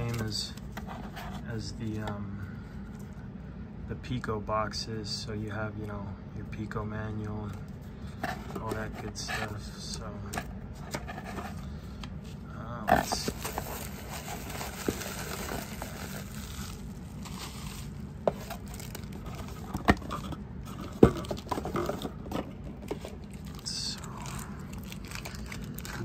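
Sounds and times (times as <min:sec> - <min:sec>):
plastic bags and bubble wrap rustling: 0:13.0 - 0:26.0.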